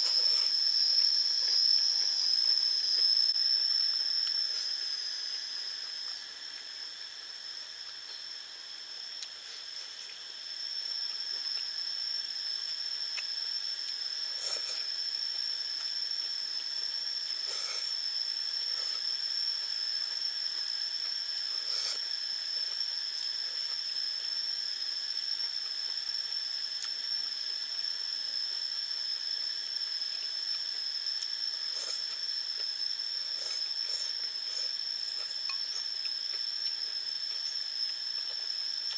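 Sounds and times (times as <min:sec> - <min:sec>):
insects droning: 0:00.0 - 0:38.9.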